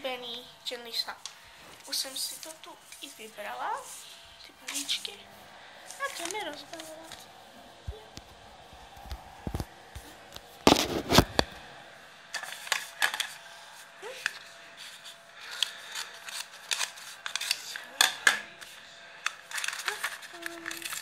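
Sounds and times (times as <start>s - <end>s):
plastic packet crinkling: 5.8s - 7.3s, 19.4s - 21.0s.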